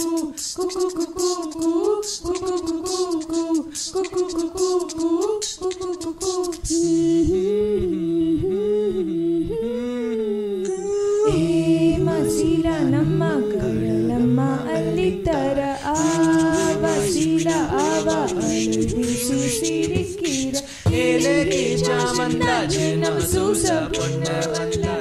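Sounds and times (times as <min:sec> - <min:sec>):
vocal percussion clicks and hisses: 0:00.0 - 0:07.0, 0:15.3 - 0:25.0
a cappella group singing: 0:00.0 - 0:25.0.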